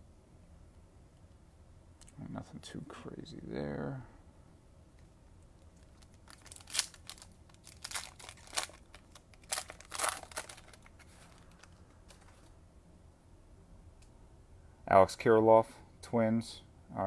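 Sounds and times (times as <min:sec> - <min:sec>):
foil wrapper crinkling: 0:05.6 - 0:12.5.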